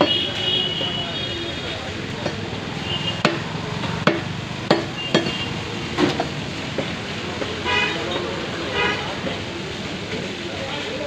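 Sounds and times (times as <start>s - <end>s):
steady background noise: 0.0s - 11.0s
cleaver chopping on wooden block: 3.2s - 5.3s.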